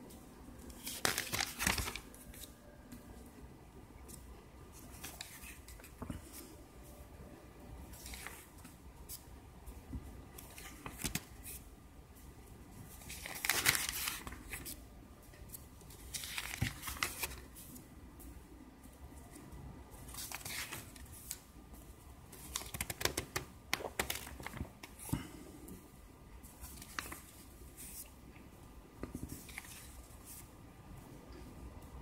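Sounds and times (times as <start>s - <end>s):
paper pages rustling: 0.6s - 2.5s, 4.8s - 6.5s, 7.9s - 9.2s, 10.4s - 11.6s, 12.9s - 14.8s, 15.9s - 17.8s, 20.1s - 21.4s, 22.4s - 25.1s, 26.6s - 28.1s, 29.0s - 30.5s.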